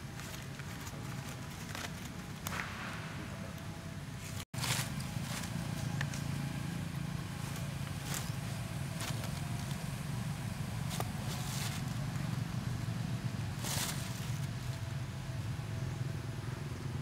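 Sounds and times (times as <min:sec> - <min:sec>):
rustling: 0:00.0 - 0:02.8, 0:04.2 - 0:06.3, 0:07.3 - 0:10.1, 0:10.7 - 0:15.0
low mechanical motor rumble: 0:00.0 - 0:17.0.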